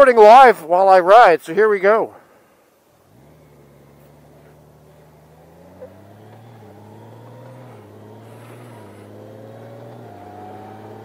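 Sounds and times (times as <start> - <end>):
motorcycle engine accelerating: 3.0 - 11.0
thin rising whine: 3.1 - 11.0.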